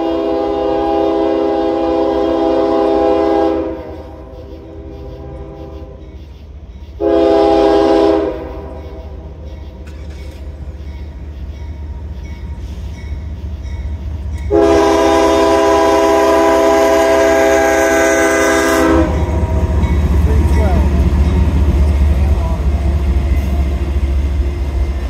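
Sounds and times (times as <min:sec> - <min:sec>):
locomotive air horn blasts: 0:00.0 - 0:06.0, 0:07.0 - 0:09.2, 0:14.5 - 0:19.8
low rumble of train: 0:00.0 - 0:25.0.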